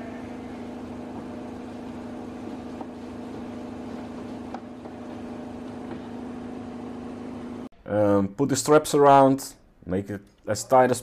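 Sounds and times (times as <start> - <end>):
steady machine hum: 0.0 - 7.7.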